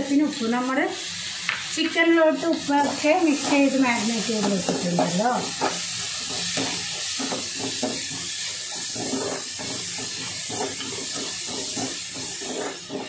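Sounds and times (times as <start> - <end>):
onions sizzling in oil: 0.0 - 13.0
wooden spatula scraping pan: 2.8 - 13.0.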